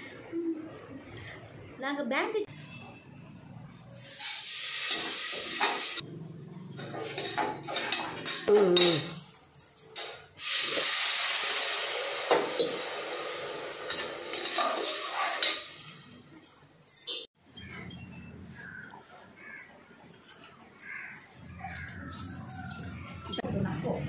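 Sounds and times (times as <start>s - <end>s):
gas stove hiss: 4.0s - 6.0s, 10.4s - 15.9s
ladle clinking against pots: 6.8s - 10.3s, 13.7s - 17.3s.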